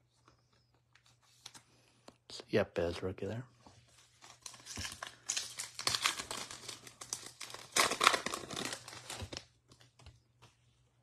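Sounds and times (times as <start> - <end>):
foil wrapper tearing and crinkling: 4.2 - 9.5.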